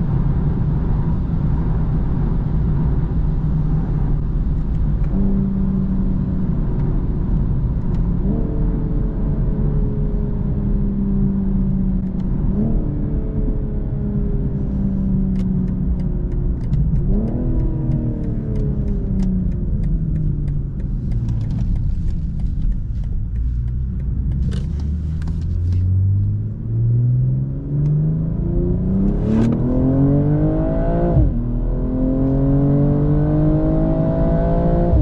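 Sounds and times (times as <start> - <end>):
car engine from cabin: 0.0 - 35.0
road rumble: 0.0 - 35.0
faint light ticks: 15.3 - 25.9.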